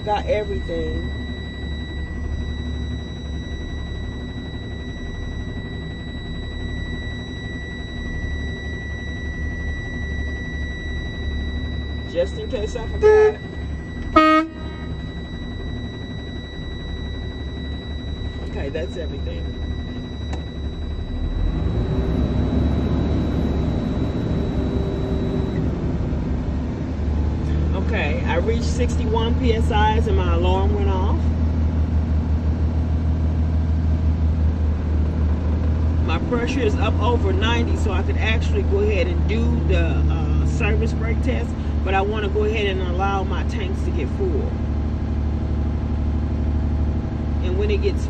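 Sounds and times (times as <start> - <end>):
warning buzzer high tone: 0.0 - 25.6, 27.7 - 31.3, 36.1 - 44.5
truck engine idling: 0.0 - 48.0.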